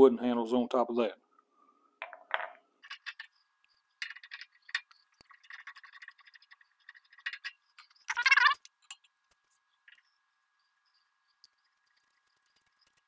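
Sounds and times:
small metal clinks and rattles: 0:04.0 - 0:09.2.

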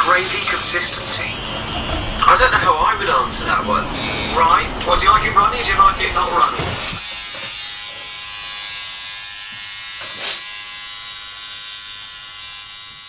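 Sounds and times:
tattoo machine buzzing: 0:00.0 - 0:01.8, 0:04.0 - 0:04.6, 0:05.6 - 0:13.0.

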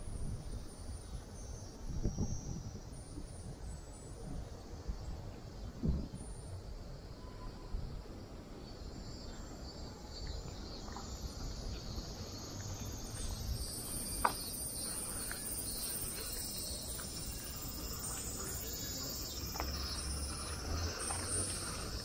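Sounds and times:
street ambience: 0:00.0 - 0:22.0
cicadas buzzing: 0:08.2 - 0:22.0.

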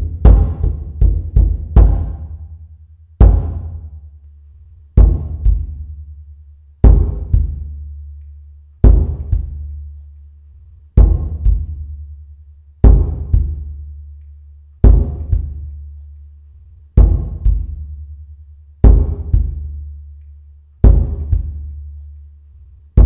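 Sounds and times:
deep drum double beat: 0:00.0 - 0:04.1, 0:05.0 - 0:06.0, 0:06.8 - 0:07.8, 0:08.8 - 0:09.6, 0:11.0 - 0:11.9, 0:12.8 - 0:13.8, 0:14.8 - 0:15.6, 0:17.0 - 0:17.9, 0:18.8 - 0:19.8, 0:20.8 - 0:21.6.

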